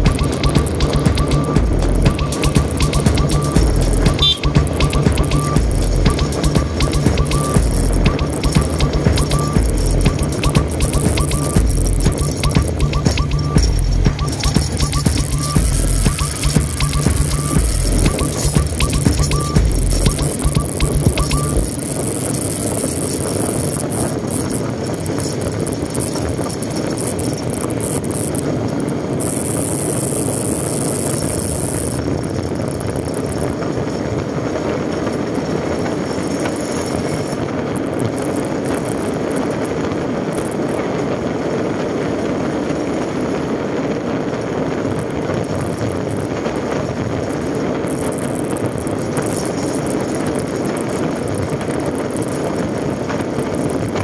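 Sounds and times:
motorcycle engine: 0.0s - 40.7s
wind and road noise: 0.0s - 54.0s.

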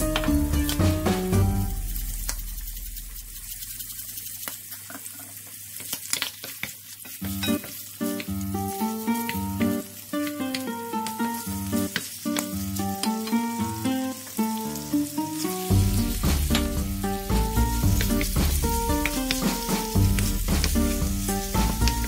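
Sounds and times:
melodic background music: 0.0s - 2.0s, 12.7s - 22.0s
food sizzling and popping in a pan: 0.0s - 22.0s.

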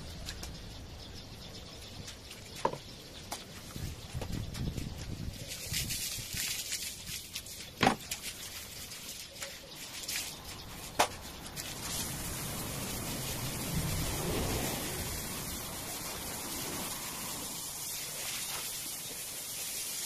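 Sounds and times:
hose spraying water on tiles: 3.3s - 20.0s.

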